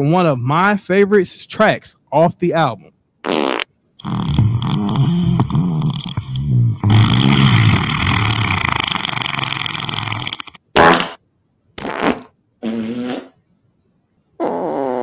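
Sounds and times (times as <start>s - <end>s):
farts: 3.2s - 11.2s, 11.8s - 13.4s, 14.4s - 15.0s.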